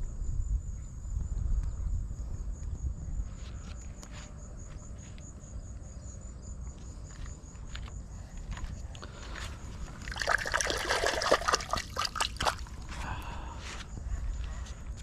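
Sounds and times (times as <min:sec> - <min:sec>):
hand splashing in river water: 0:10.0 - 0:12.8.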